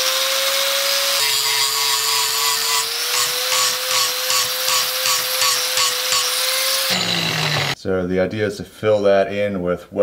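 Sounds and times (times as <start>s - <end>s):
angle grinder grinding steel: 0.0s - 7.8s.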